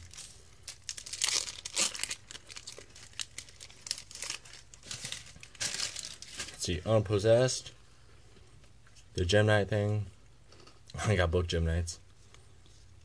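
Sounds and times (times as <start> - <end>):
foil wrapper crinkling and tearing: 0.0 - 6.7.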